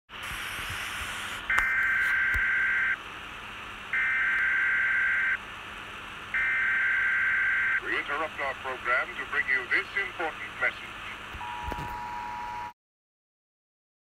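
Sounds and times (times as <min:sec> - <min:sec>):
static hiss: 0:00.1 - 0:11.8
harsh electronic alert tones: 0:01.5 - 0:03.0, 0:04.0 - 0:05.4, 0:06.4 - 0:07.8.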